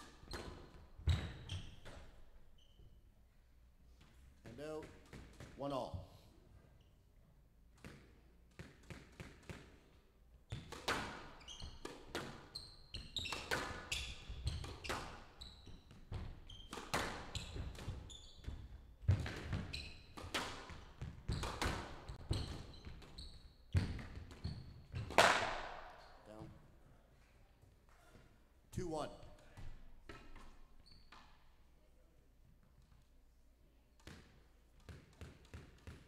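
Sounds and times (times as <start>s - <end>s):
racket smacking squash ball: 10.5s - 26.1s
shoes squeaking on wooden floor: 11.4s - 20.2s, 21.0s - 25.1s.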